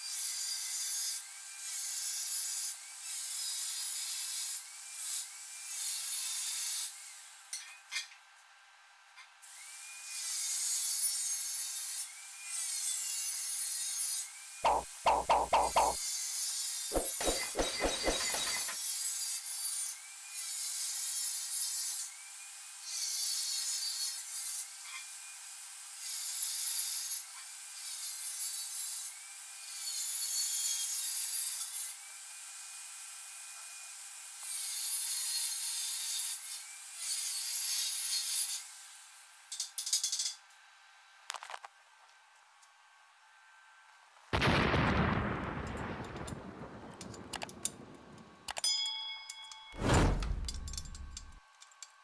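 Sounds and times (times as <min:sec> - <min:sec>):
hammer tapping steel: 0:14.6 - 0:16.0, 0:16.9 - 0:18.8.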